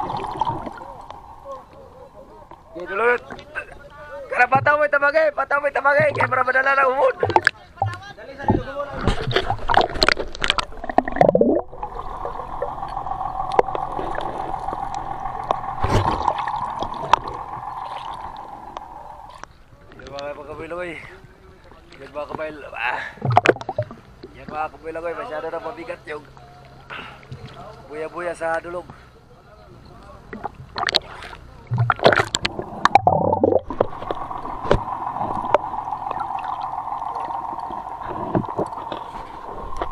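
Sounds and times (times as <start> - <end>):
muffled underwater hum: 0.0 - 3.9, 7.3 - 20.1, 31.7 - 39.9
water splashing and sloshing: 0.0 - 5.0, 6.0 - 20.3, 21.2 - 24.6, 30.2 - 39.9.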